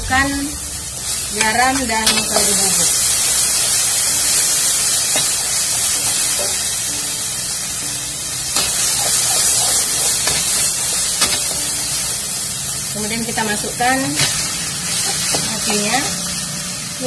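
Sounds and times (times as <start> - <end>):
spice paste sizzling in wok: 0.0 - 17.0
metal spatula scraping: 8.6 - 12.1.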